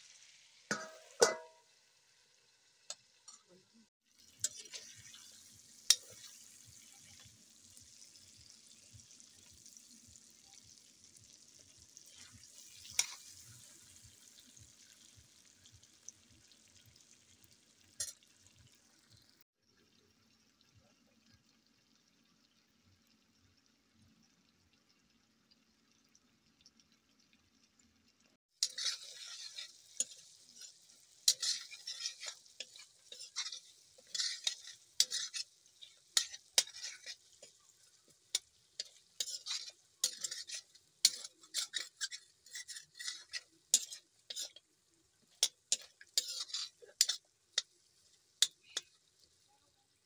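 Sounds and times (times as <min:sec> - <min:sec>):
meat sizzling: 0:00.0 - 0:03.3, 0:04.0 - 0:19.4, 0:28.5 - 0:50.0
metal spoon scraping a wok: 0:00.7 - 0:01.6, 0:04.4 - 0:07.3, 0:12.1 - 0:14.0, 0:28.6 - 0:47.7.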